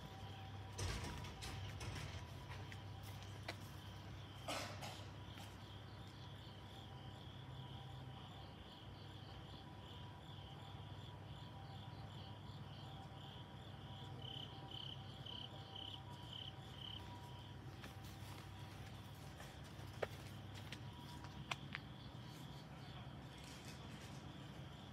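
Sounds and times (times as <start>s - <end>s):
crickets chirping: 0.0s - 24.9s.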